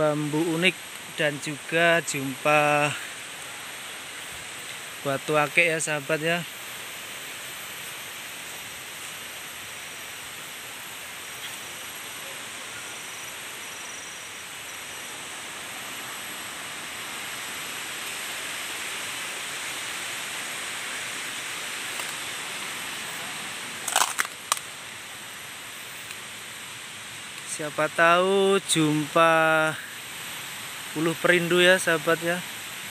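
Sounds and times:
forest background hiss: 0.0 - 32.9
dry twigs snapping: 21.9 - 22.2, 23.8 - 24.7.

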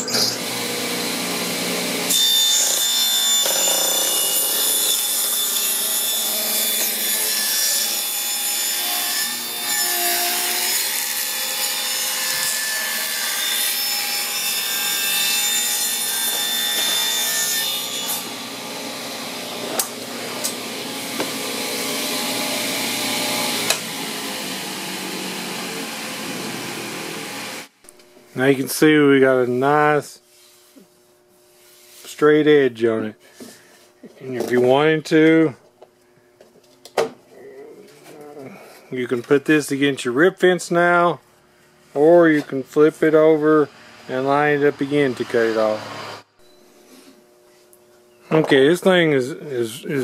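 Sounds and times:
table saw cutting wood: 0.0 - 27.8, 42.0 - 46.4.

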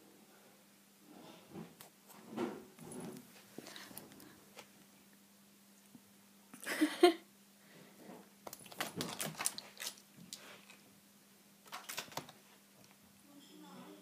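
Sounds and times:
cat pawing crinkly plastic wrapper: 8.4 - 10.8, 11.7 - 12.4.

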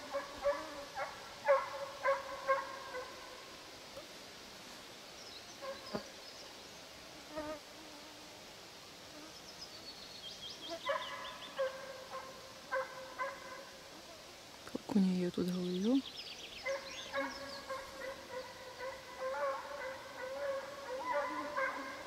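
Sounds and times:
hounds baying: 0.1 - 3.3, 10.8 - 13.8, 16.6 - 22.0.

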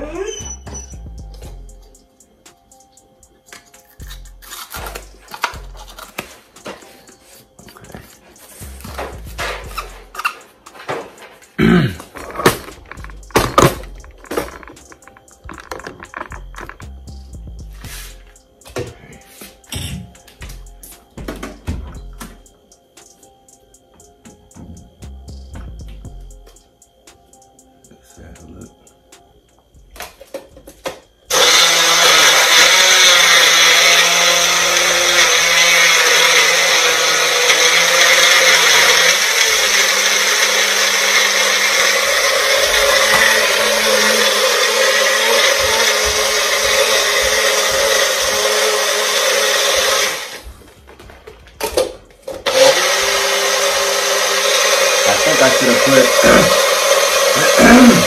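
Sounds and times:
blender crushing ice: 4.0 - 6.3, 9.9 - 16.8, 30.8 - 50.4, 51.7 - 58.0.

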